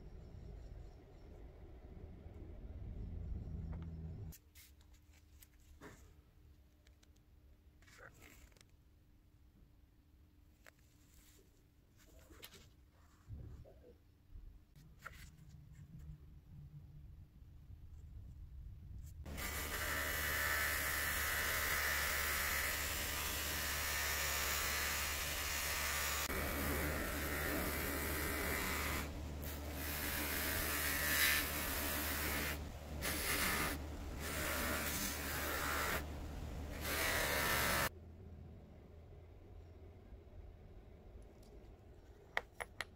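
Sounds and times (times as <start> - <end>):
buffing wheel rushing hiss: 19.3 - 37.9.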